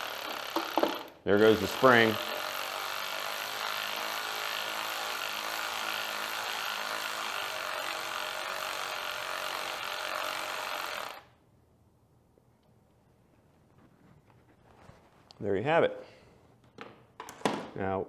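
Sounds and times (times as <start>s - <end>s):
cordless electric ratchet running: 0.0s - 11.3s.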